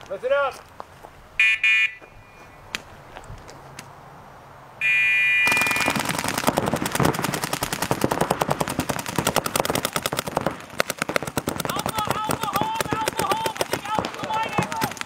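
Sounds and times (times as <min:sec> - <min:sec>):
paintball markers firing: 0:05.4 - 0:15.0.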